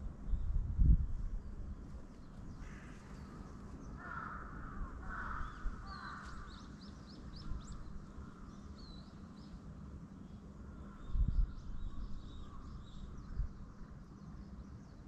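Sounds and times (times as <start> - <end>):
crow cawing: 2.6 - 3.1, 4.0 - 6.6.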